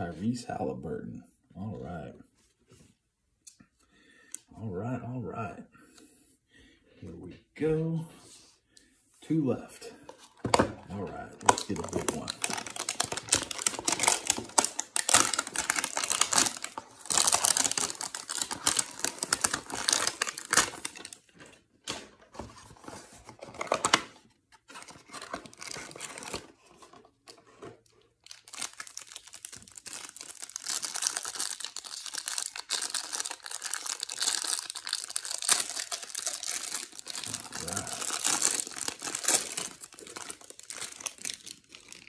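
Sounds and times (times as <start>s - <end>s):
cardboard packaging tearing: 11.4s - 21.3s, 22.6s - 27.0s, 28.2s - 42.0s.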